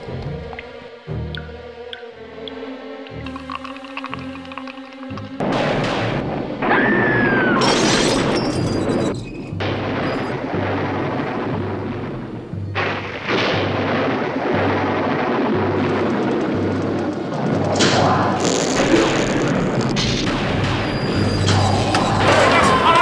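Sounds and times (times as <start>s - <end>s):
dramatic film score music: 0.0s - 7.6s
electrical booming and crackling: 5.4s - 23.0s.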